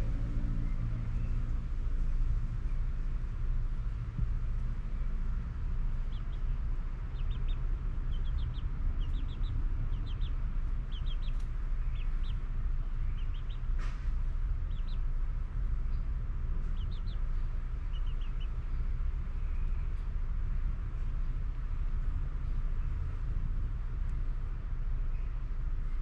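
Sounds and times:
steady low rumble: 0.0 - 26.0
chickens chirping: 5.9 - 13.8, 14.6 - 15.1, 16.6 - 18.7.

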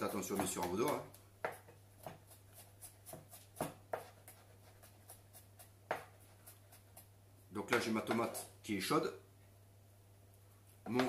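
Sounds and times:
knife tapping and scraping board: 0.0 - 7.1.

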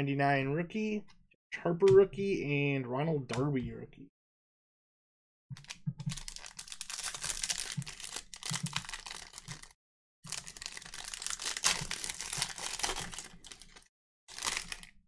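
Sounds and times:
foil wrapper crinkling and tearing: 6.1 - 15.0.

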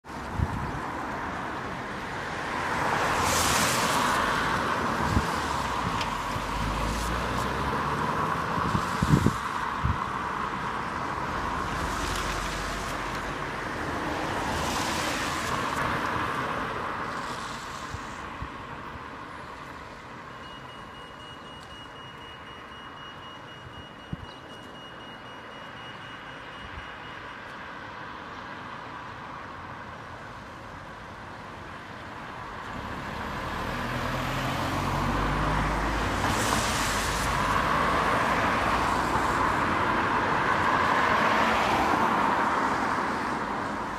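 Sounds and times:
cars passing: 0.0 - 43.9
rapid high crossing beeps: 20.2 - 27.4.

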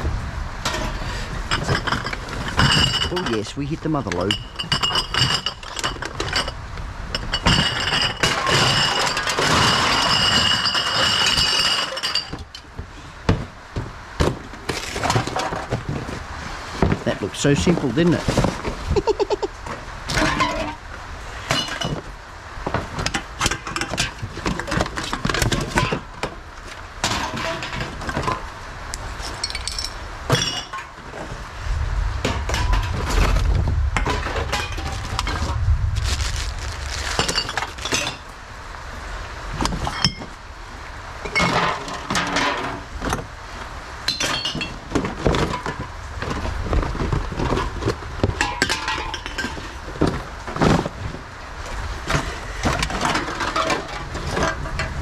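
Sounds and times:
cans and bottles clattering: 0.6 - 6.6, 7.2 - 26.4, 27.0 - 28.5, 29.2 - 31.4, 32.2 - 35.6, 36.3 - 38.3, 41.2 - 43.3, 44.1 - 51.2, 52.0 - 55.0
low rumble: 31.3 - 39.0.

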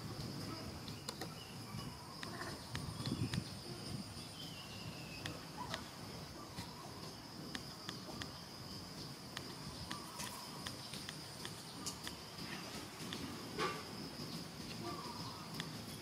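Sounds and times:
insect chorus droning: 0.0 - 16.0
faint clicks: 9.3 - 12.2, 15.5 - 15.8.

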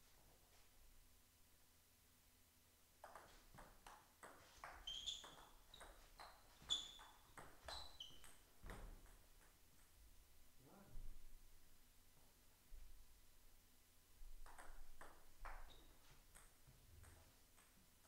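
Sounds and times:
ball bouncing on table: 3.0 - 9.6, 14.4 - 17.7
ping pong ball hitting rackets: 3.0 - 9.6, 14.4 - 17.7.

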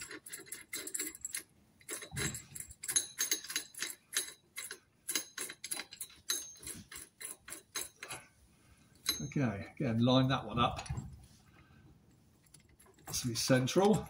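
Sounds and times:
metallic clicks and clinks: 0.0 - 8.3, 9.0 - 9.6.

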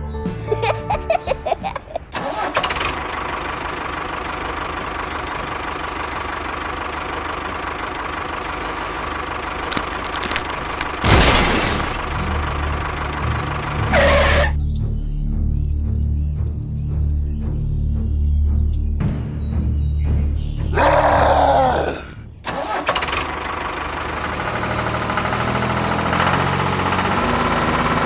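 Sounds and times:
model tractor motor running: 2.2 - 12.1, 22.6 - 28.0
sudden loud burst: 11.0 - 12.2.

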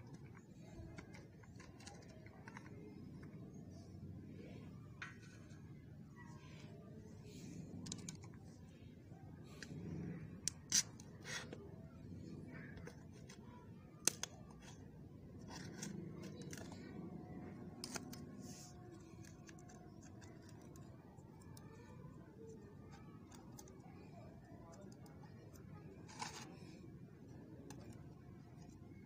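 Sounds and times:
seal clicking and snapping: 14.0 - 14.8, 15.5 - 22.0
scraping and crinkling foil: 26.1 - 26.8.

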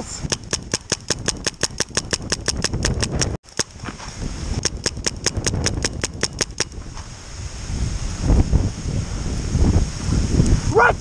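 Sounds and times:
paintball marker firing rapidly: 0.2 - 3.8, 4.6 - 6.8.

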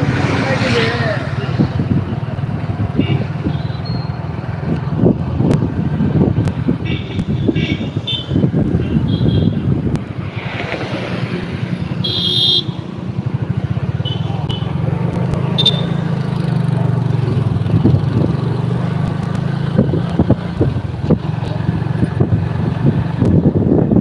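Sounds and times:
motorbike running: 0.0 - 24.0
passing traffic: 0.0 - 24.0
wind rumbling on microphone: 1.1 - 12.0, 16.2 - 24.0
short high beeps: 3.8 - 4.2.

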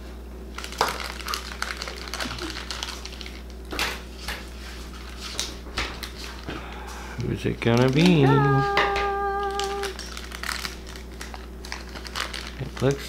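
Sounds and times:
paper rustling: 9.4 - 13.0.

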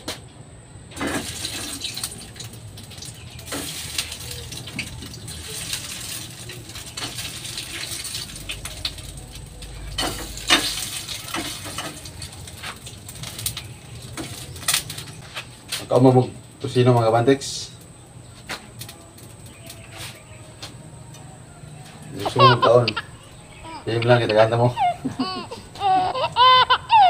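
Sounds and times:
oil sizzling in a pan: 1.1 - 15.1.

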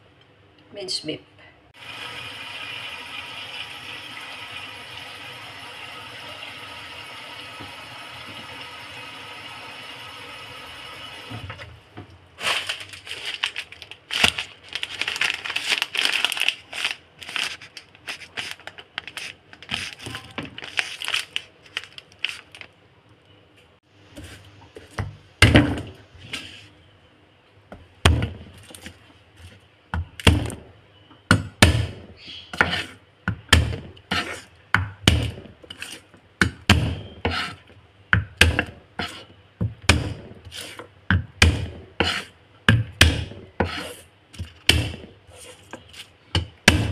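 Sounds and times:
tap water running into saucepan: 1.8 - 11.6.

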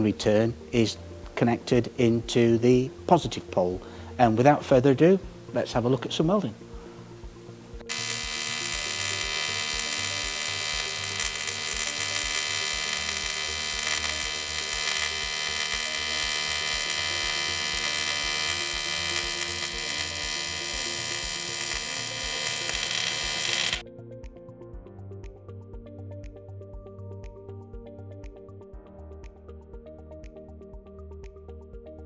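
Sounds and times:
welding arc buzzing: 7.8 - 23.8.

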